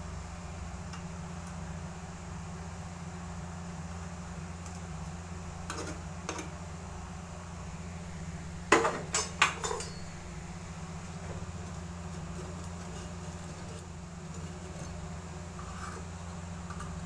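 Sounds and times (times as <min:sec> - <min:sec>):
metal utensil clanking on pan: 0:08.8 - 0:10.1, 0:15.6 - 0:17.0.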